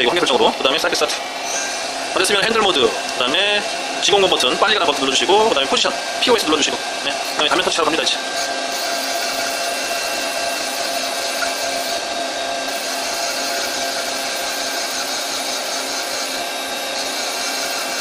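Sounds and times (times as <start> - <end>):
steady whining tones: 0.0 - 18.0
lathe machine whir: 0.5 - 18.0.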